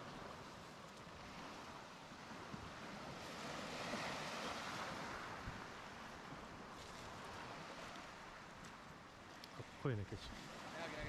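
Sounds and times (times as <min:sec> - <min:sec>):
waves washing on pebble beach: 0:00.0 - 0:08.6, 0:09.3 - 0:11.0
wind: 0:00.0 - 0:11.0.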